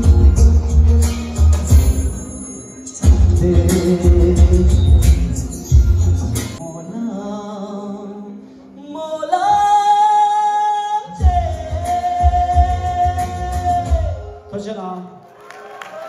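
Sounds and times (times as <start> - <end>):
band accompaniment: 0.0 - 6.6.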